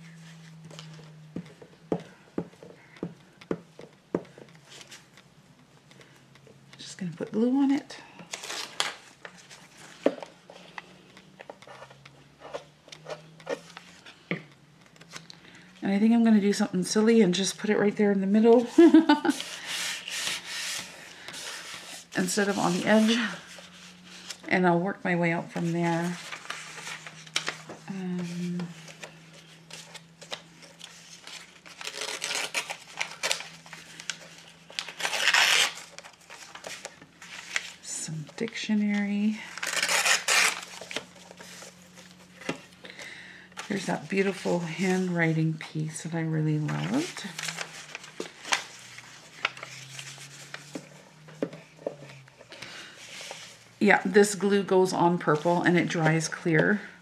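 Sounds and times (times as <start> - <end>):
faint steady hum: 0.0 - 57.0
paper rustling and crinkling: 18.5 - 24.5, 25.5 - 42.8, 46.5 - 53.8.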